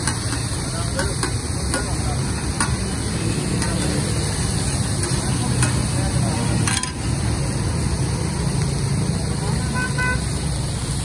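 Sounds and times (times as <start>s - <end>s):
spatula tapping metal griddle: 0.0s - 4.1s, 4.9s - 5.9s, 6.6s - 7.1s
meat sizzling on a griddle: 0.0s - 11.0s.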